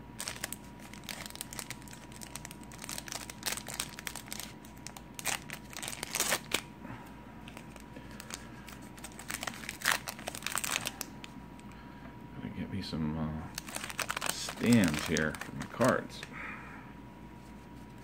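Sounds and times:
foil wrapper crinkling: 0:00.2 - 0:06.7, 0:07.5 - 0:11.1, 0:13.5 - 0:16.2.

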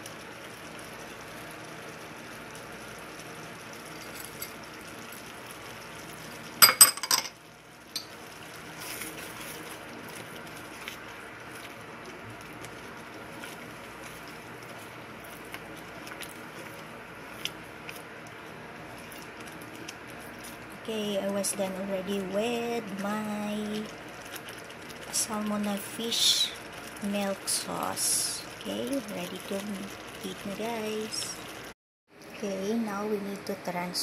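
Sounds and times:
sauce simmering hiss: 0:00.0 - 0:06.6, 0:07.4 - 0:33.8
glass bowl clinking on metal pan: 0:06.6 - 0:07.3
spatula stirring sauce: 0:08.0 - 0:20.7.

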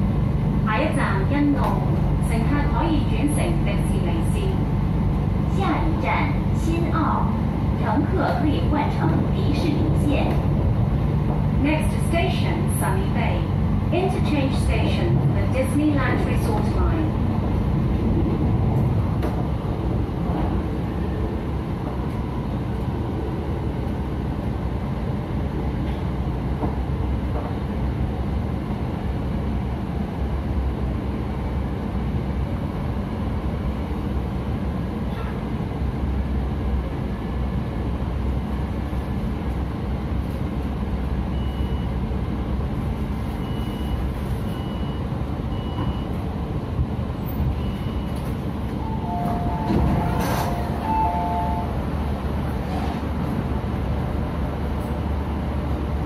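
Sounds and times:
train rumbling: 0:00.0 - 0:56.0.

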